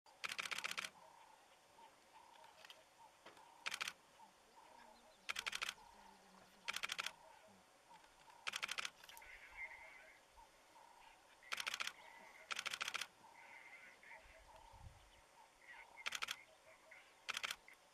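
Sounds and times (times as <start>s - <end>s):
faint chirping calls: 0.1s - 17.9s
camera shutters clicking rapidly: 0.2s - 0.9s, 3.6s - 4.0s, 5.3s - 5.8s, 6.7s - 7.2s, 8.4s - 9.0s, 11.4s - 13.1s, 16.0s - 16.4s, 17.2s - 17.7s.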